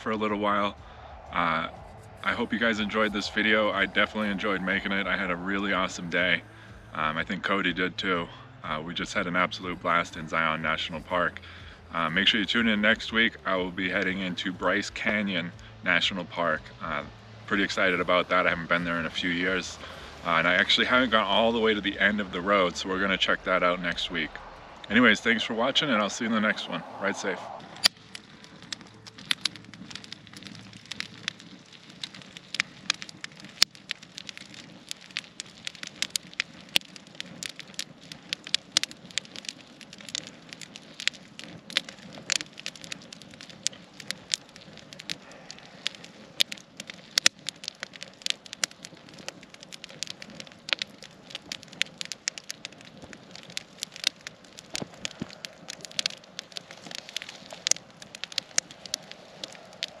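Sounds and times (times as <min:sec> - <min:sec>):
campfire crackling and popping: 0:00.0 - 1:00.0.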